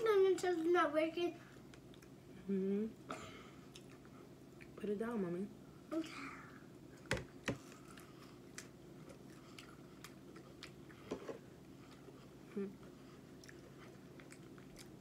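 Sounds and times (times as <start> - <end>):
chewing soft fruit: 7.6 - 15.0.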